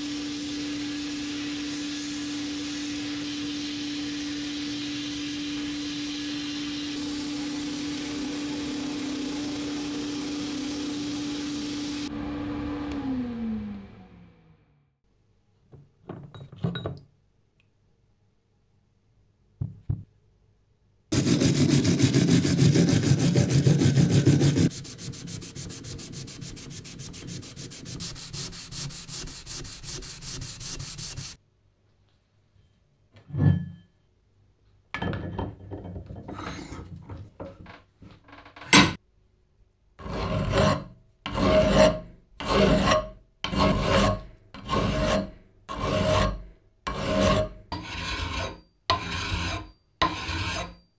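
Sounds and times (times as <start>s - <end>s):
knock: 19.6s - 20.1s
hand file cutting metal: 21.1s - 31.4s, 40.0s - 50.8s.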